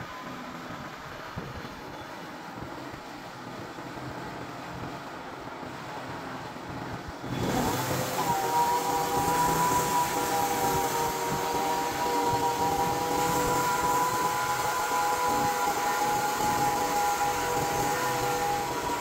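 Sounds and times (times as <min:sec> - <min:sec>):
band sawmill cutting log: 0:07.3 - 0:19.0.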